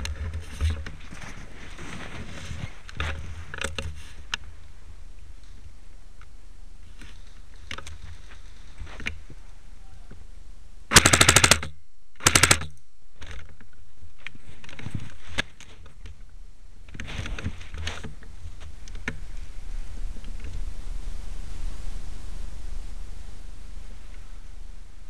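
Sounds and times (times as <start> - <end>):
airsoft gun full-auto bursts: 10.9 - 12.7.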